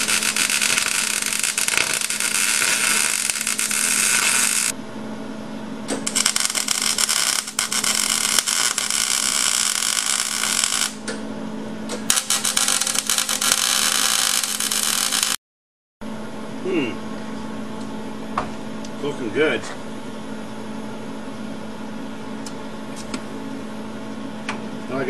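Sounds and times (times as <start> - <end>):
welding arc crackling: 0.0 - 4.8, 5.9 - 11.0, 12.1 - 15.4
steady low hum: 0.0 - 15.4, 16.0 - 25.0.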